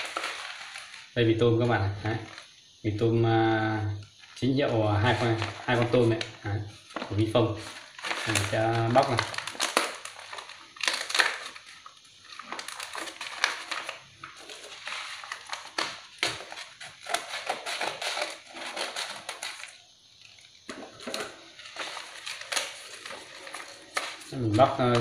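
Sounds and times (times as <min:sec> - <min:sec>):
plastic wrapper crinkling and tearing: 0:00.0 - 0:01.2, 0:05.1 - 0:25.0
scissors cutting plastic: 0:08.0 - 0:11.8, 0:12.4 - 0:19.8, 0:20.9 - 0:25.0.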